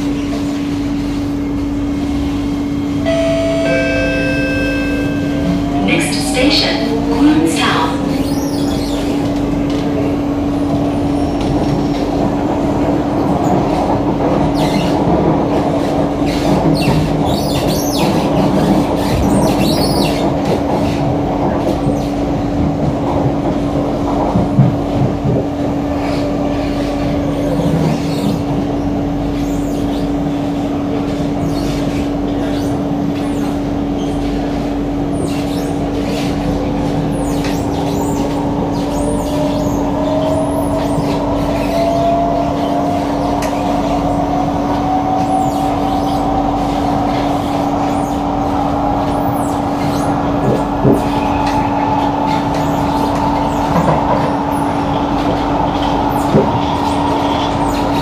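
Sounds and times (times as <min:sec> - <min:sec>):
train rumble and hum: 0:00.0 - 0:58.0.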